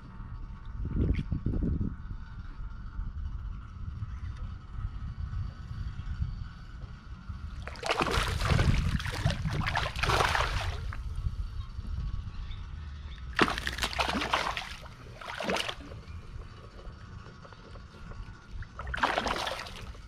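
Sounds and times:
steady low rumble: 0:00.0 - 0:20.0
water splashing and sloshing: 0:07.5 - 0:11.2, 0:13.3 - 0:16.9, 0:17.8 - 0:20.0.

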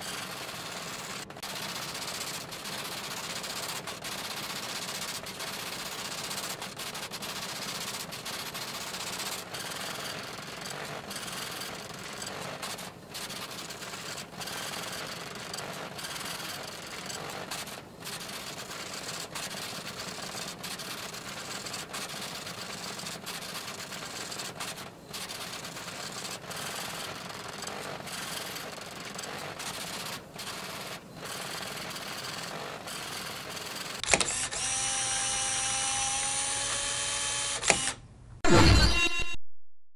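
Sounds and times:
teletype typing clatter: 0:00.0 - 0:34.3
sharp click: 0:34.0 - 0:34.5, 0:37.6 - 0:39.4.

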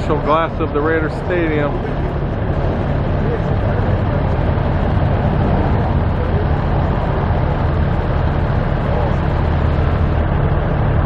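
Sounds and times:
faint voices: 0:00.0 - 0:09.6
low engine rumble: 0:00.0 - 0:11.0.

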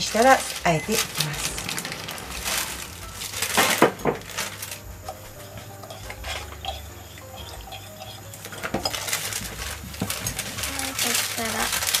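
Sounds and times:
kitchen dishes clinking: 0:00.0 - 0:12.0.

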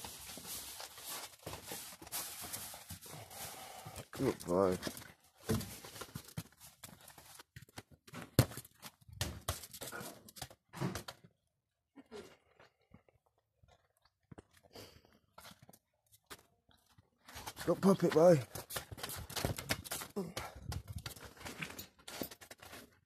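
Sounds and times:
ball on stone paving: 0:04.5 - 0:11.4, 0:12.6 - 0:23.0.

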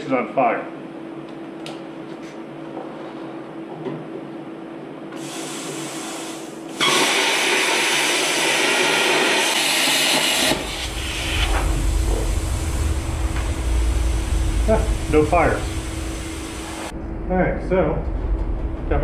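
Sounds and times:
plasma cutter hissing: 0:05.2 - 0:16.9
low rumble: 0:10.6 - 0:19.0.

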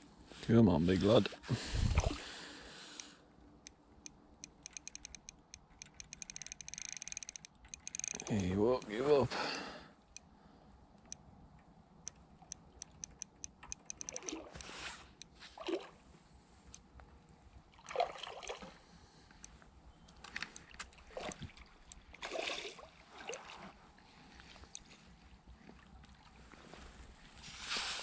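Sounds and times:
fishing reel ticking: 0:04.4 - 0:08.9, 0:12.5 - 0:15.3.

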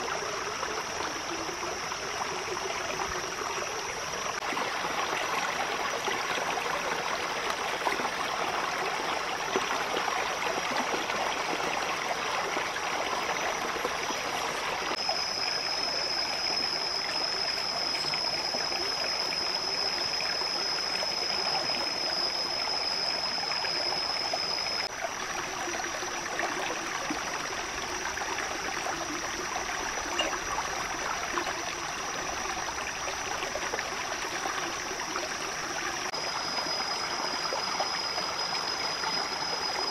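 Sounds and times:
stream rushing and trickling: 0:00.0 - 0:39.9
high-pitched tone: 0:30.0 - 0:30.6.

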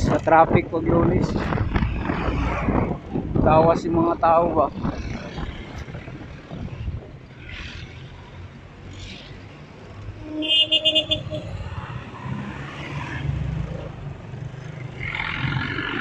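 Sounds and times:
vehicle engines passing: 0:00.0 - 0:16.0
motorcycle passing: 0:04.7 - 0:16.0.

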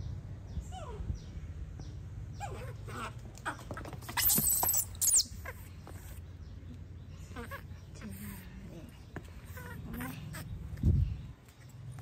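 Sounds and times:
animal shrill squeal: 0:04.2 - 0:05.4.

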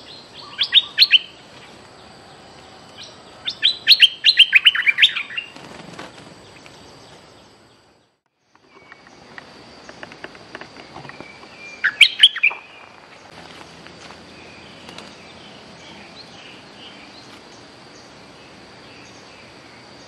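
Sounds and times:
bird high falling chirps: 0:10.9 - 0:18.1.

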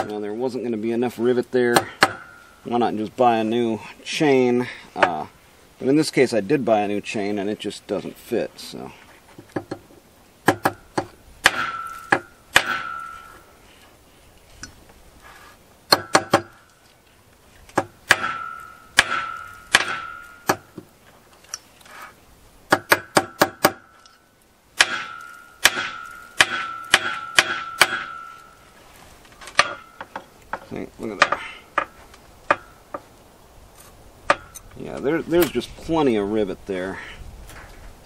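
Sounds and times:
hammer tapping metal rivets: 0:01.7 - 0:02.4, 0:09.4 - 0:13.4, 0:15.9 - 0:16.7, 0:17.7 - 0:20.9, 0:22.7 - 0:24.2, 0:24.8 - 0:28.6, 0:29.4 - 0:33.0, 0:34.3 - 0:34.7.

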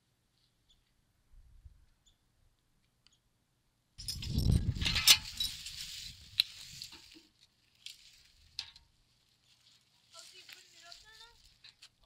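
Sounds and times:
metal hoist clinking and rattling: 0:04.0 - 0:05.8.

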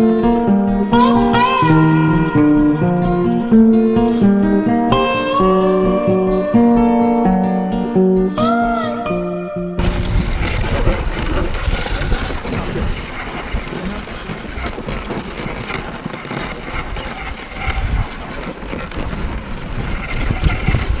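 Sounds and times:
sled runners scraping snow: 0:00.0 - 0:21.0
wind rumbling on microphone: 0:09.7 - 0:21.0.

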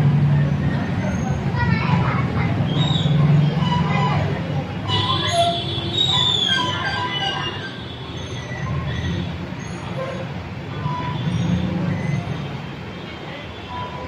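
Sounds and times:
vehicle rumble: 0:00.0 - 0:14.0.

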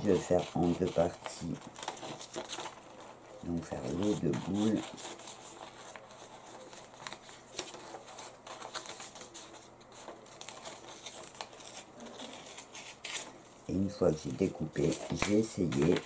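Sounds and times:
scissors cutting paper: 0:00.0 - 0:02.8, 0:03.6 - 0:13.3
paper rustling: 0:00.0 - 0:16.0.

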